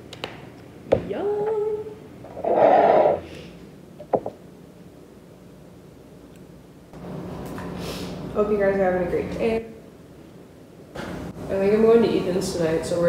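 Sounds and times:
squeeze bottle sputtering: 0:02.3 - 0:03.3.

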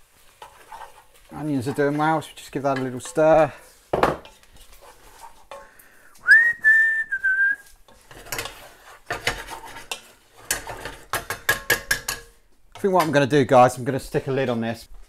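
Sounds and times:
spoon scraping in heavy pot: 0:00.2 - 0:05.8, 0:07.9 - 0:12.4
pot and utensils clattering: 0:00.3 - 0:05.8, 0:07.9 - 0:13.2
person whistling short note: 0:06.2 - 0:07.7.

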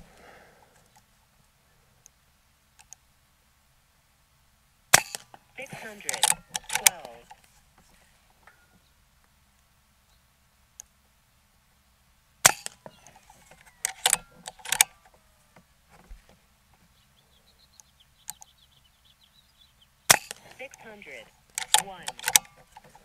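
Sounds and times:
air rifle shots: 0:04.9 - 0:07.3, 0:12.4 - 0:12.8, 0:13.8 - 0:15.0, 0:20.1 - 0:23.0
rifle action clicks: 0:05.0 - 0:07.5, 0:12.4 - 0:15.1, 0:20.1 - 0:23.0.

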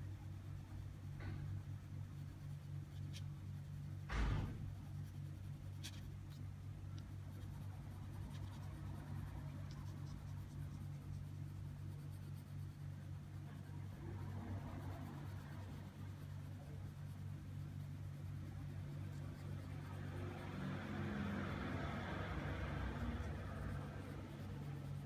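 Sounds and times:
steady low hum: 0:00.0 - 0:25.0
pencil scratching on paper: 0:00.6 - 0:25.0
brief thump: 0:04.0 - 0:04.8.

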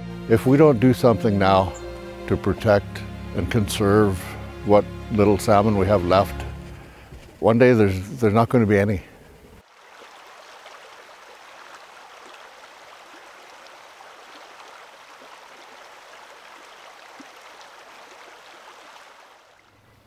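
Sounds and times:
creek flowing over pebbles: 0:09.6 - 0:20.0.

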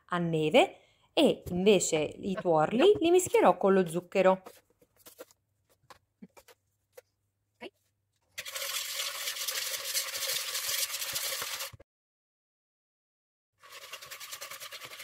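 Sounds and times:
utensil scraping plastic bowl: 0:13.6 - 0:15.0.

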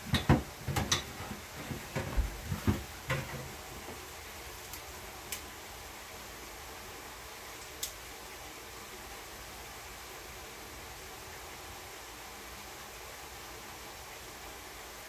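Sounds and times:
kitchen utensils and dishes clattering: 0:00.0 - 0:03.6.

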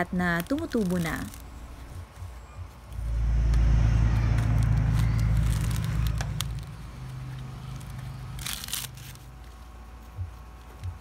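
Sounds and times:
coconut husk crackling and tearing: 0:00.0 - 0:01.9, 0:07.8 - 0:09.6
low rumble with steady hum: 0:01.3 - 0:11.0.

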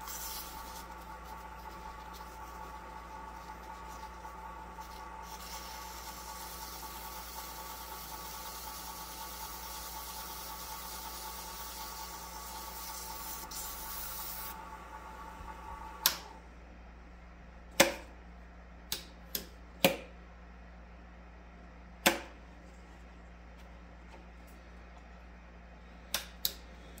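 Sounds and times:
sandpaper hissing on spinning wood: 0:00.0 - 0:14.6
lathe motor humming: 0:00.0 - 0:16.4.

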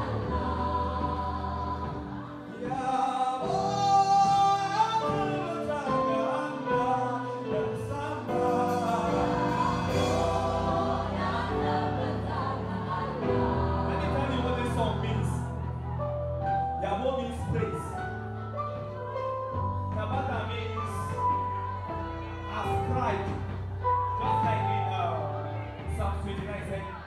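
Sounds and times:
gospel choir singing: 0:00.0 - 0:16.3.

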